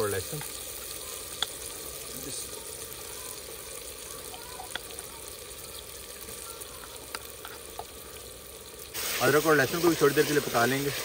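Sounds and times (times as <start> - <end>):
food sizzling in hot oil: 0.0 - 11.0.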